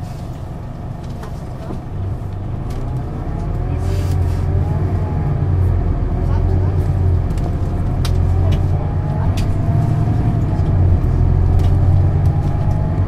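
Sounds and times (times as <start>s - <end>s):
bus diesel engine droning: 0.0s - 13.0s.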